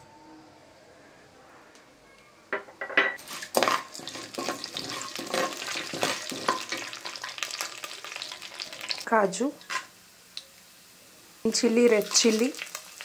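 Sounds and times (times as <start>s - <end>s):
clinks and scrapes on pan: 2.6s - 6.9s
seeds sizzling in oil: 3.2s - 13.0s.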